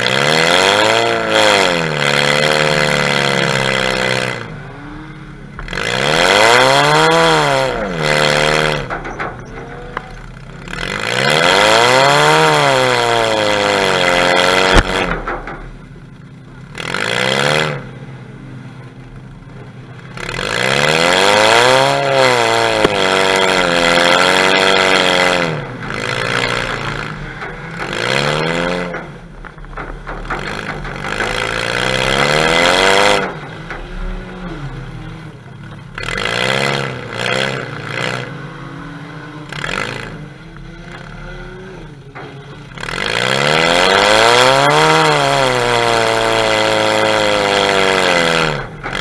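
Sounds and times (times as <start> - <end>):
car engine revving: 0.0 - 49.0.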